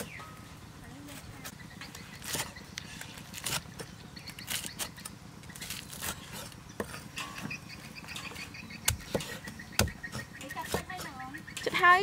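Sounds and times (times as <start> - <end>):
cleaver chopping on wooden block: 8.8 - 11.1.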